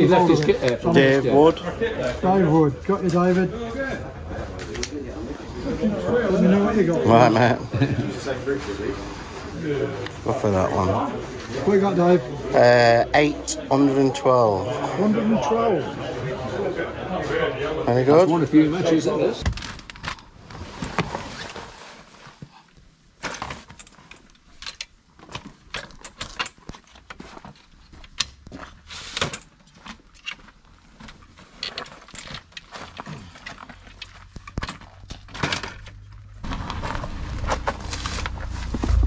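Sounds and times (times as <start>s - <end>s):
tackle boxes clicking and rattling: 23.2s - 36.8s
low steady rumble: 36.4s - 39.0s.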